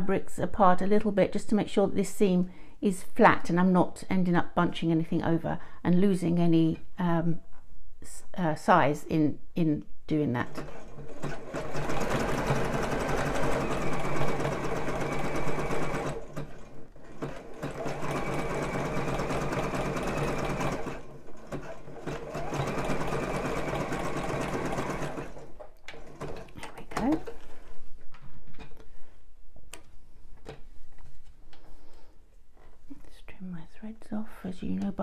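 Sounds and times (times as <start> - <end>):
sewing machine stitching: 10.5 - 27.7.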